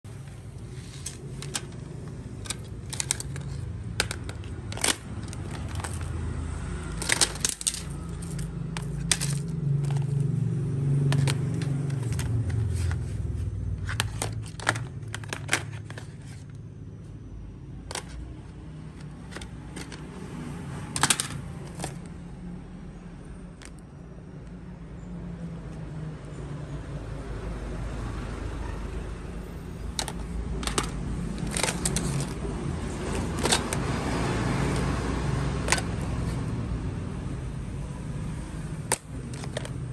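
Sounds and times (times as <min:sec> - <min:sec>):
phones clacking and scraping: 0:00.0 - 0:10.4, 0:11.0 - 0:16.7, 0:17.8 - 0:22.3, 0:29.4 - 0:36.7, 0:38.8 - 0:39.9.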